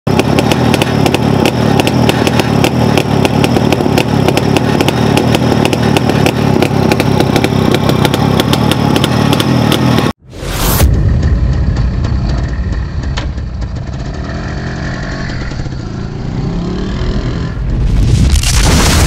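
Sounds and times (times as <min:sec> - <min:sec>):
motorcycle engine idling with ticks: 0:00.1 - 0:10.1.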